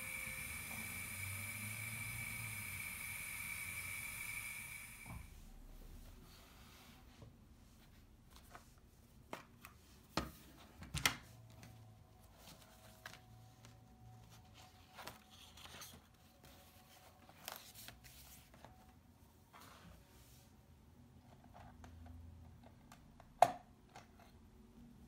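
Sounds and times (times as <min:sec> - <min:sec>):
sketchbook pages rustling: 0:07.8 - 0:20.0.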